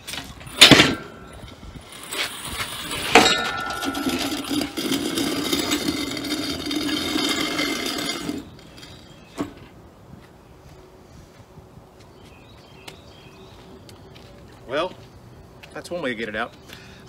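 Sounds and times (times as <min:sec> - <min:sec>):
metal scraping across ground: 0:00.0 - 0:09.6.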